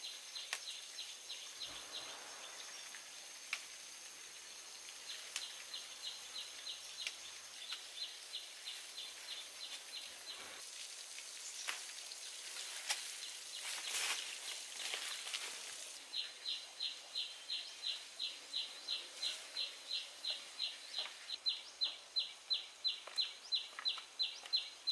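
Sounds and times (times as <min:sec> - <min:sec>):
leaves snapping and rustling: 0:11.2 - 0:16.0.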